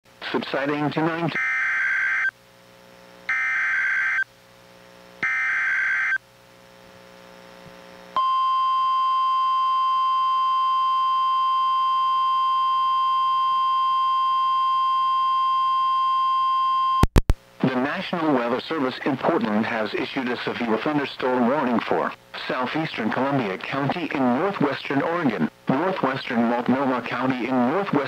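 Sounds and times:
steady warning alarm tone: 0:01.3 - 0:02.3, 0:03.3 - 0:04.2, 0:05.2 - 0:06.2.

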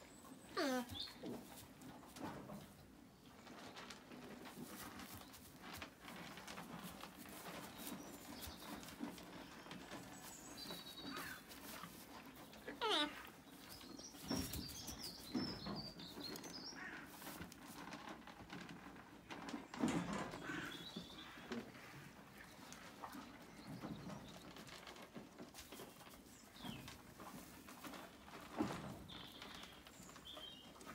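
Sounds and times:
rustling on straw: 0:03.3 - 0:15.4.

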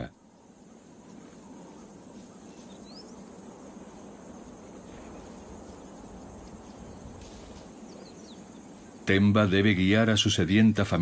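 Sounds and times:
rising bird chirps: 0:00.0 - 0:09.1
insect drone: 0:00.0 - 0:11.0.

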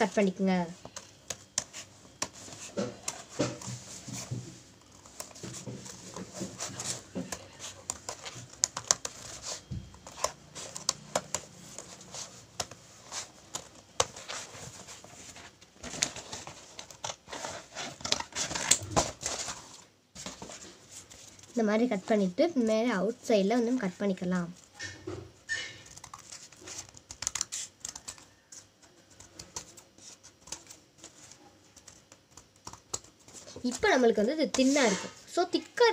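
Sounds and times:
scissors cutting cardboard: 0:01.2 - 0:15.2.

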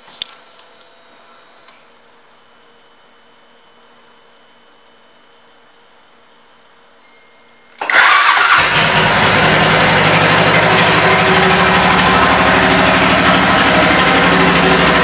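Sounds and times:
engine starter whir: 0:07.7 - 0:15.0
motorcycle engine idling: 0:08.6 - 0:15.0.

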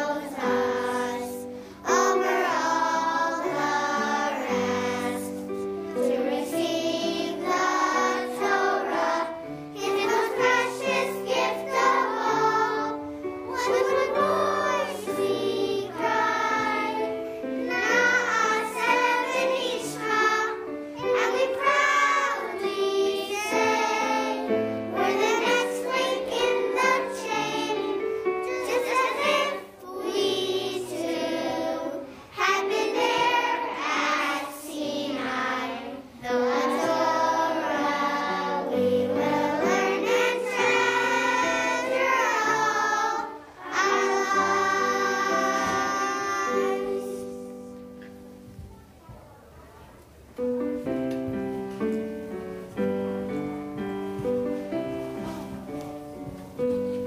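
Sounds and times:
children singing in unison: 0:00.0 - 0:47.7
instrumental accompaniment: 0:50.3 - 0:57.0.

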